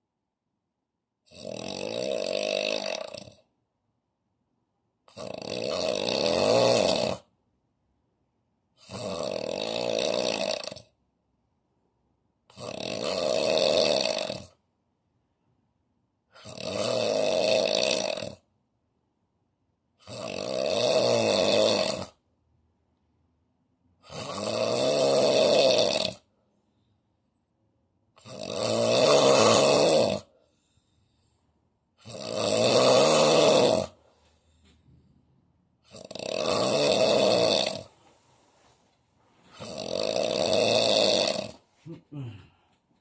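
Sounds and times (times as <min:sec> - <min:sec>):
man snoring: 0:01.2 - 0:03.5, 0:05.1 - 0:07.3, 0:08.7 - 0:11.0, 0:12.4 - 0:14.6, 0:16.3 - 0:18.5, 0:20.0 - 0:22.2, 0:24.0 - 0:26.3, 0:28.1 - 0:31.0, 0:32.0 - 0:34.0, 0:35.8 - 0:38.0, 0:39.5 - 0:42.6.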